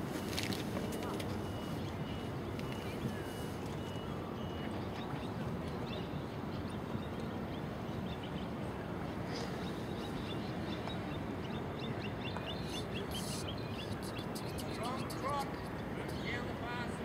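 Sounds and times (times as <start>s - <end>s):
small birds chirping: 9.3s - 16.4s.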